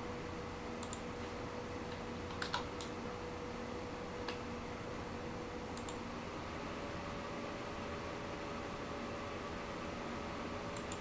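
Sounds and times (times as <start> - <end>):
cooling fan whirring: 0.0 - 11.0
sharp clicks: 0.8 - 1.1, 5.8 - 6.0, 10.8 - 11.0.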